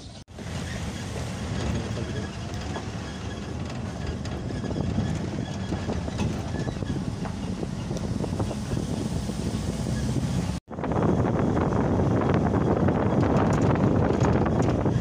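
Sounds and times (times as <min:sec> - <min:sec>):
road and engine rumble: 0:00.0 - 0:15.0
light rattles and clicks: 0:01.5 - 0:08.1, 0:13.1 - 0:15.0.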